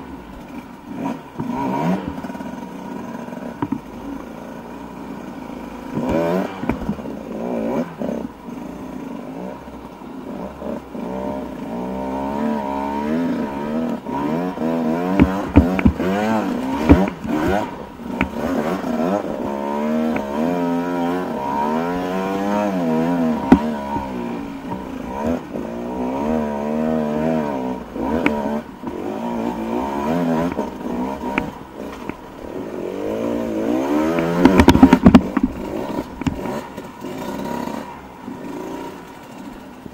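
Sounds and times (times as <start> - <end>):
dirt bike engine revving: 0.0 - 39.9
sharp knocks: 15.0 - 18.9, 23.3 - 25.4, 34.0 - 36.6.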